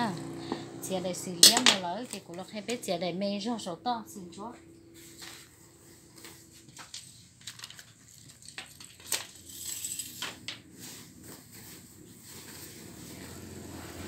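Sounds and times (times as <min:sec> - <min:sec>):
crinkly rustling: 0:05.0 - 0:13.7.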